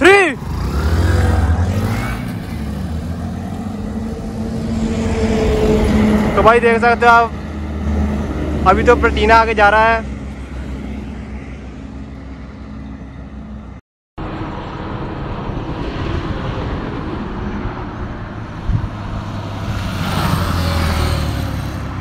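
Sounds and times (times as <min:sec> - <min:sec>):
motorcycle passing close: 0:00.0 - 0:09.2, 0:15.4 - 0:22.0
motorcycle engines racing: 0:00.0 - 0:11.0, 0:15.6 - 0:22.0
road noise: 0:00.0 - 0:22.0
wind noise: 0:02.8 - 0:06.7, 0:14.2 - 0:22.0.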